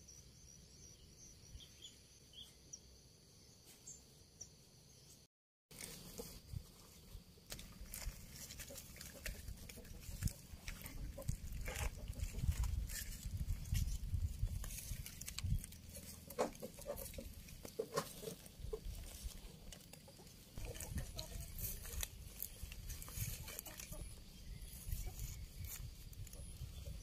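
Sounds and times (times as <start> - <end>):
dry leaves and soil rustling: 5.7 - 27.0.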